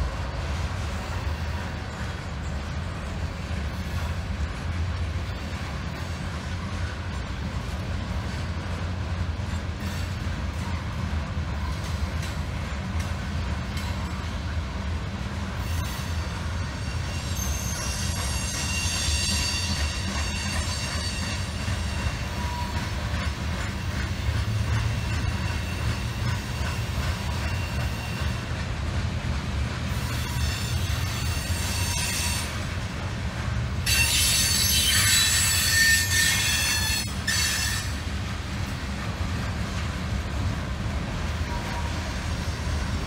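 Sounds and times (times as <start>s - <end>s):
train wheels rumbling on rail: 0.0s - 43.0s
high-pitched wheel squeal: 30.1s - 32.6s, 33.9s - 38.0s.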